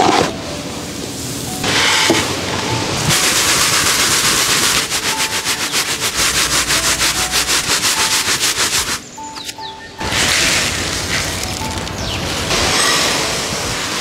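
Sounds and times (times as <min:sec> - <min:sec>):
corn sifting in a bamboo sieve: 0:03.0 - 0:14.0.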